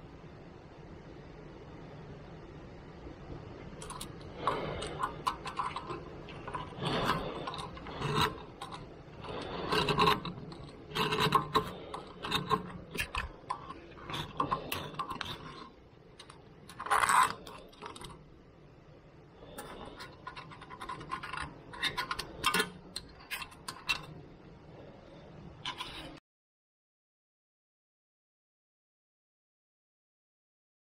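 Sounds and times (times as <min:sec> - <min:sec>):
metal-on-metal scraping: 0:03.8 - 0:18.2, 0:19.4 - 0:24.3, 0:25.6 - 0:26.2.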